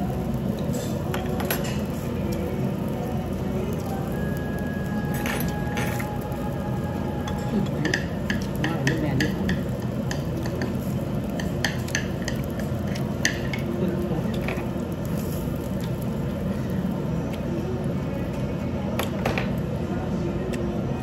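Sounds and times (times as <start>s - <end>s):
chopsticks and dishes clinking: 0.6s - 2.0s, 7.2s - 14.7s.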